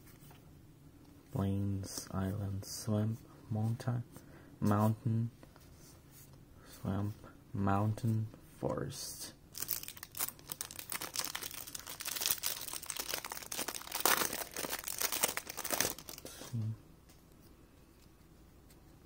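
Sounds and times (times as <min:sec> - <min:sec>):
cellophane wrapper crinkling: 0:09.5 - 0:16.5.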